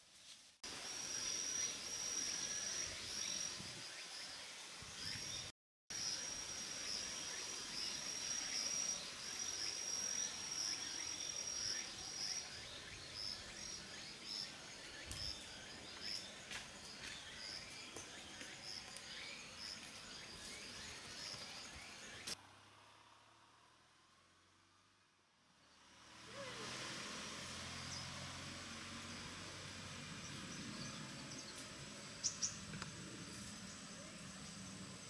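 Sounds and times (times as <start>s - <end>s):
insects trilling and chirping: 0.7s - 22.4s.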